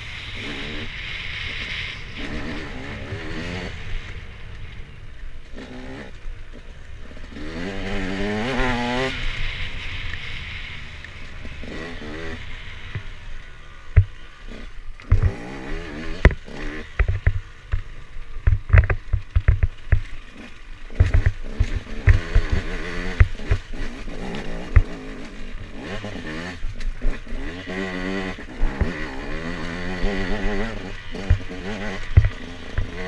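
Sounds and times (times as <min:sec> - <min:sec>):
motorcycle engine revving: 0:00.0 - 0:33.0
knocks of bike over rocks: 0:16.2 - 0:20.2, 0:20.9 - 0:22.6.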